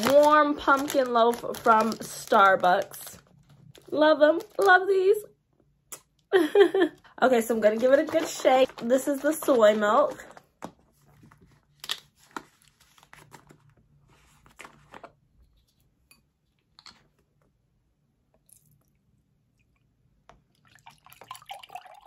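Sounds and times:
liquid pouring into glass: 20.6 - 22.0.

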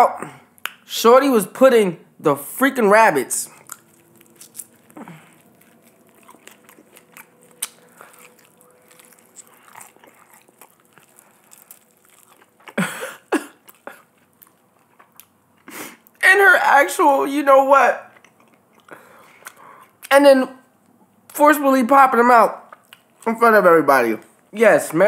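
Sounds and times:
chewing with wet crunches: 3.4 - 12.9, 13.5 - 16.2.

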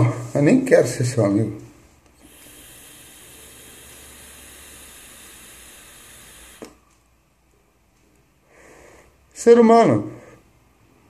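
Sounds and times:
e-cigarette vapor hiss: 2.1 - 7.0.

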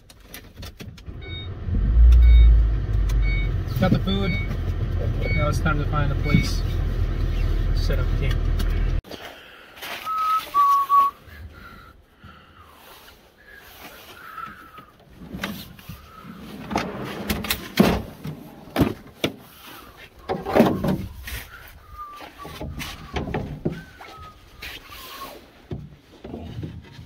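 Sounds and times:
person whistling notes: 10.0 - 11.3, 21.8 - 23.2
metal case sliding out: 16.5 - 19.2.

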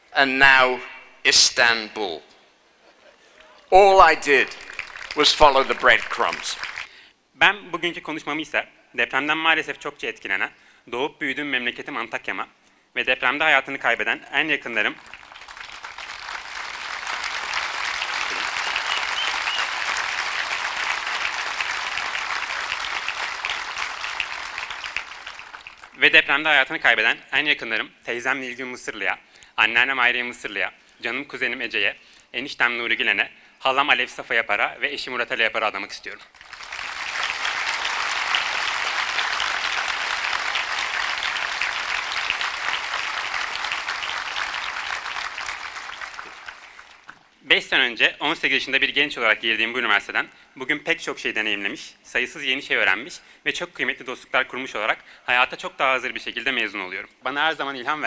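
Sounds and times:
audience applauding: 3.9 - 7.0, 15.0 - 26.0, 36.4 - 47.2.

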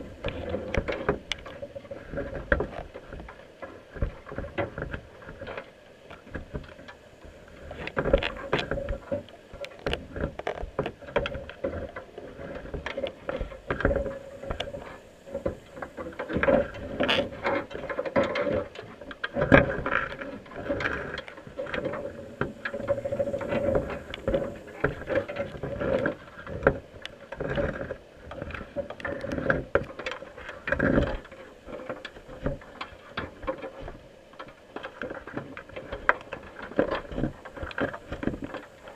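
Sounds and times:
crab clicking and scraping: 0.0 - 38.9
steady hum: 19.3 - 27.1.

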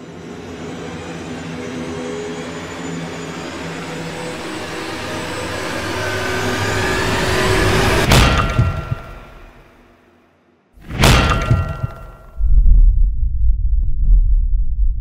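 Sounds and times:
rushing rumbling noise: 3.2 - 9.7, 10.8 - 15.0
heavy hit: 7.8 - 9.8, 10.8 - 13.3.

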